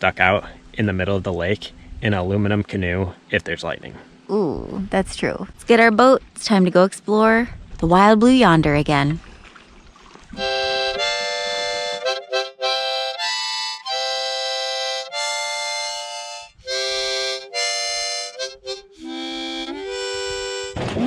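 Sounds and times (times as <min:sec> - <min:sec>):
harmonica playing chords: 0:10.4 - 0:21.0.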